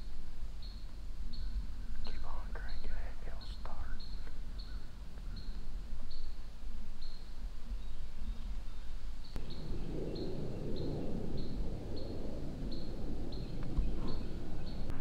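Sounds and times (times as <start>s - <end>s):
low rumble: 7.5s - 15.0s.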